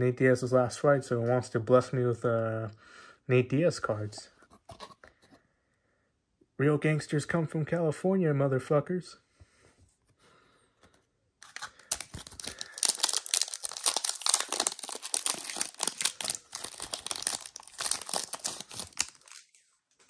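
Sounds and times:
foil wrapper crinkling and tearing: 0:11.4 - 0:19.6.

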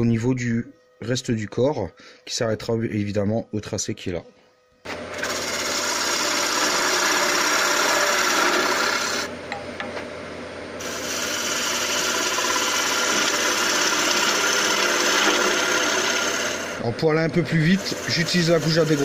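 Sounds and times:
wood lathe shaving hiss: 0:04.9 - 0:09.3, 0:10.8 - 0:16.9, 0:17.5 - 0:19.0.

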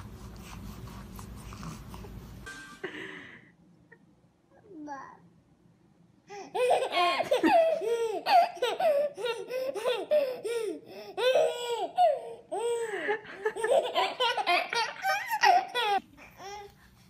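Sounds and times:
babies laughing: 0:06.5 - 0:16.0.

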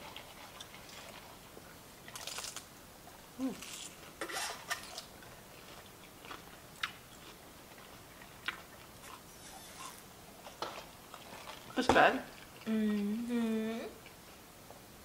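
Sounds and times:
quiet chewing: 0:00.0 - 0:14.8.

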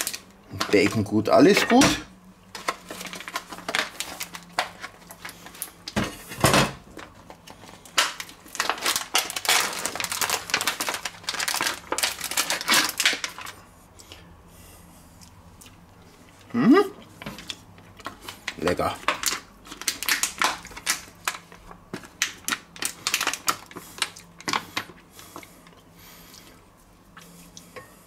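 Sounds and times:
plastic packet crinkling: 0:00.0 - 0:01.8, 0:02.5 - 0:06.0, 0:06.8 - 0:13.6, 0:17.4 - 0:24.9.

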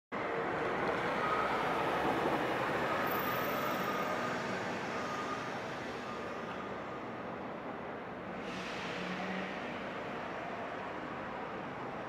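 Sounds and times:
tram running: 0:00.2 - 0:09.2
car driving past: 0:08.6 - 0:10.4.

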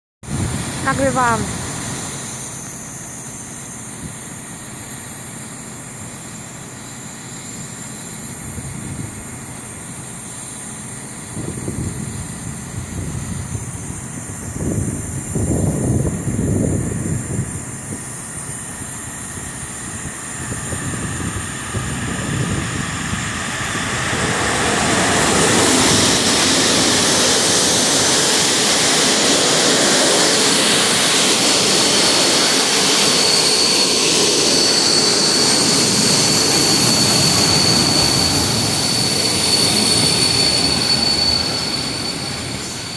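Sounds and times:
train wheels rumbling on rail: 0:03.8 - 0:42.9
high-pitched squeal: 0:11.0 - 0:42.9.

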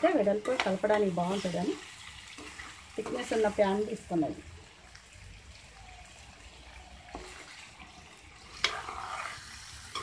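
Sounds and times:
ladle scraping metal pan: 0:08.4 - 0:10.0.

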